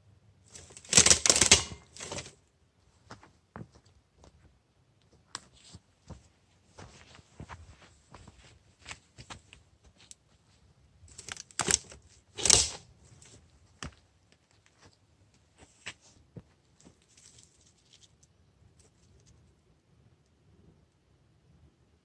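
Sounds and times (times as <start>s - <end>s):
twigs crackling in a campfire: 16.8s - 19.6s.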